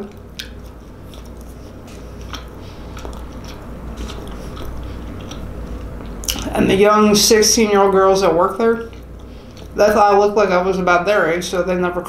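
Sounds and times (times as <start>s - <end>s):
wet mouth clicks: 0.0s - 6.5s
close chewing: 0.0s - 6.6s, 8.8s - 9.8s
steady low hum: 0.0s - 12.0s.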